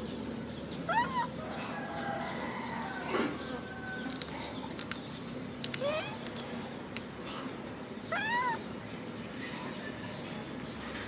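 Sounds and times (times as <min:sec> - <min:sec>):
baby monkey crying: 0:00.9 - 0:01.7, 0:08.0 - 0:08.7
plastic wrapper crackling: 0:04.0 - 0:07.1.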